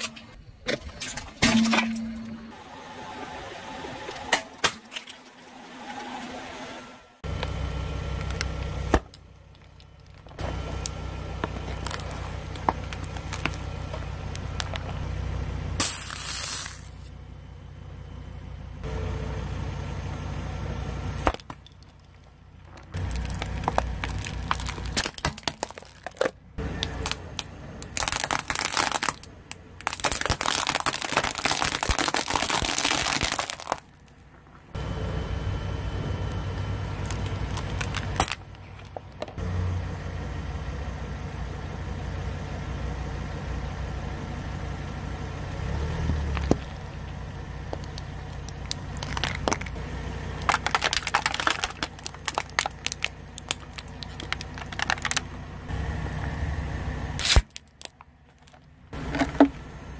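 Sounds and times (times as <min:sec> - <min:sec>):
low engine hum: 0:01.7 - 0:59.9
tyre crushing plastic packaging: 0:11.5 - 0:13.7, 0:23.0 - 0:34.1, 0:37.0 - 0:39.0, 0:47.8 - 0:49.8, 0:50.4 - 0:55.2, 0:57.2 - 0:59.5.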